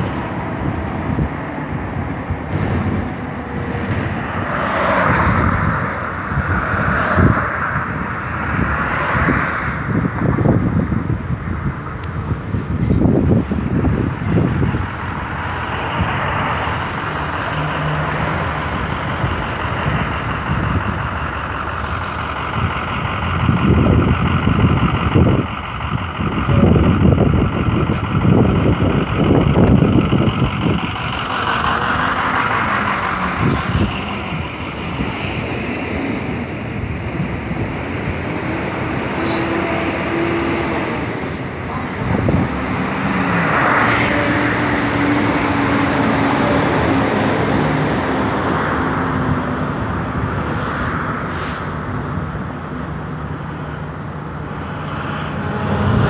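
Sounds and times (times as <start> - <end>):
bus engine running: 0.0 - 56.0
road noise: 0.0 - 56.0
heavy low rumbling: 9.8 - 39.2.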